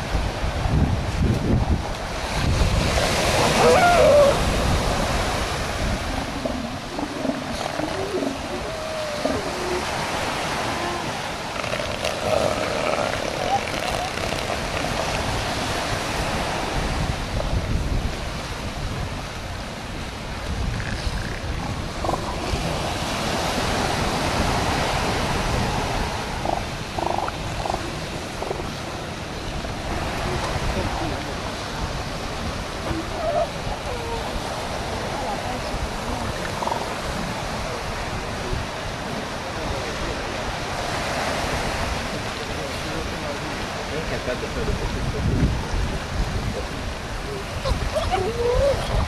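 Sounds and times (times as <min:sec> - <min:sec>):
surf washing on beach: 0:00.0 - 0:49.0
wind on microphone: 0:00.0 - 0:49.0
elephant seals calling: 0:03.0 - 0:15.6, 0:20.7 - 0:22.7, 0:26.3 - 0:28.9, 0:32.8 - 0:37.2.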